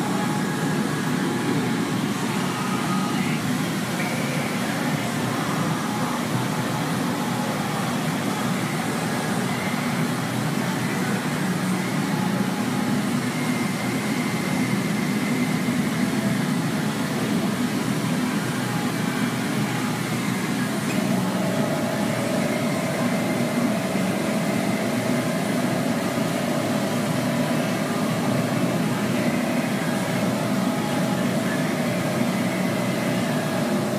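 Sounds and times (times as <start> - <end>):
machine rumble with hiss: 0.0 - 33.9
steady hum: 0.0 - 33.9.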